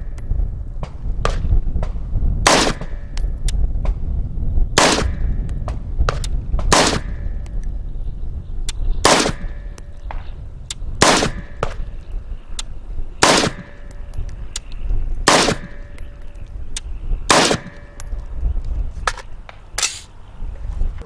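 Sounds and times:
rifle shots: 2.4s - 3.0s, 4.8s - 5.4s, 6.7s - 7.3s, 9.0s - 9.6s, 11.0s - 11.8s, 13.2s - 13.9s, 15.2s - 15.9s, 17.3s - 18.0s.

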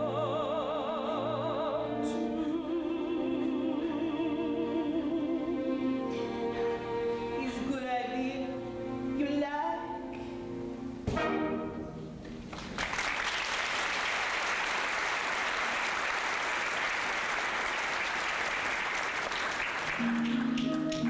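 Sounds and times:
orchestra playing: 0.0s - 12.5s, 19.9s - 21.0s
audience applauding: 12.4s - 21.0s.

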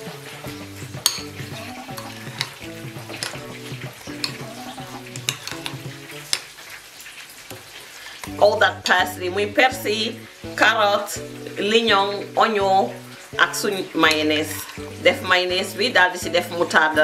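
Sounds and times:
soft background music: 0.0s - 6.6s, 7.6s - 17.0s
spoon squelching through coleslaw: 0.5s - 8.4s, 12.9s - 15.6s
spoon clicking against metal bowl: 1.0s - 1.3s, 1.9s - 2.6s, 4.1s - 6.4s.

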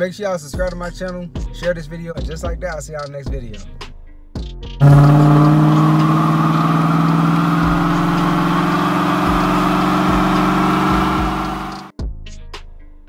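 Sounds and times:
car engine revving high: 4.8s - 11.9s.

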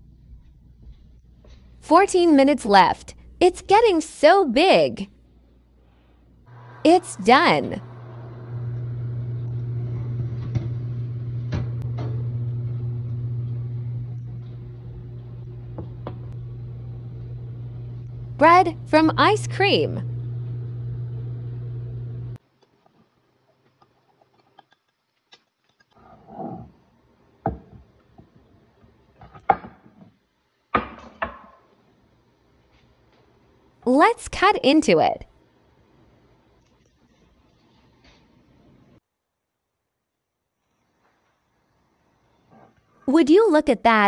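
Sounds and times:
oven hum: 6.4s - 22.4s.

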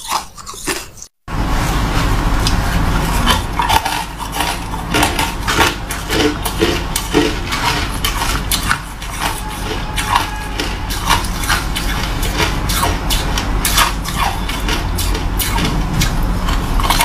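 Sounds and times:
crushed ice clinking: 4.0s - 12.7s.

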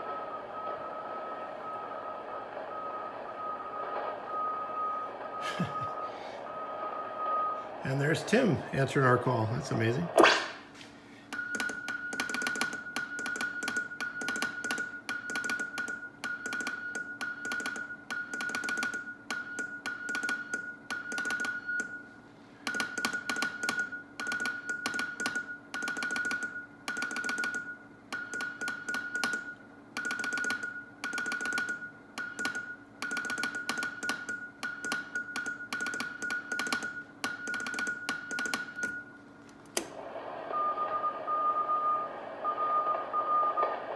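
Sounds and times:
steady low hum: 0.0s - 43.9s
morse code tone: 40.5s - 43.8s.

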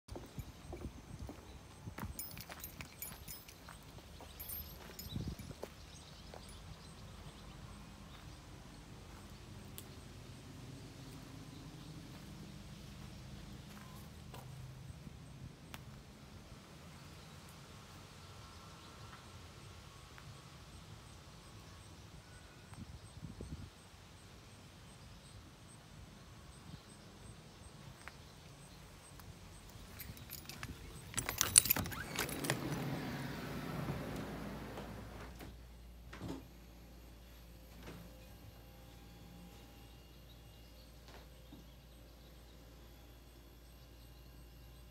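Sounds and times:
keys jingling: 1.9s - 6.8s, 29.7s - 34.3s
footsteps on dirt path: 13.0s - 14.5s
low wind rumble on microphone: 22.6s - 23.8s
door hardware clicking: 30.0s - 33.5s.

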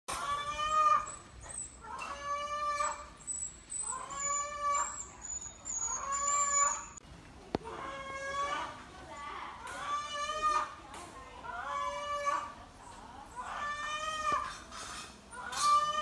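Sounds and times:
animal crying out in distress: 0.1s - 7.0s, 7.7s - 8.8s, 9.6s - 10.8s, 11.4s - 12.6s, 13.3s - 14.6s, 15.3s - 16.0s.

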